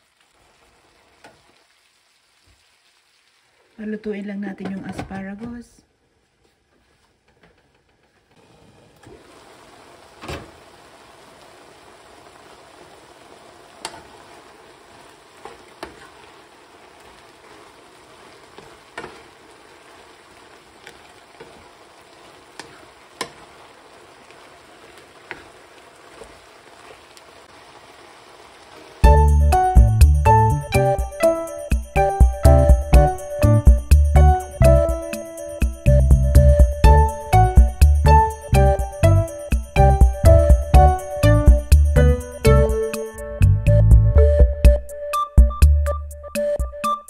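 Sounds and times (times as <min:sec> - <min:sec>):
food sizzling in a pan: 0:00.0 - 0:03.9, 0:08.4 - 0:32.4
wooden spatula scraping a pan: 0:15.4 - 0:16.2, 0:22.6 - 0:23.4.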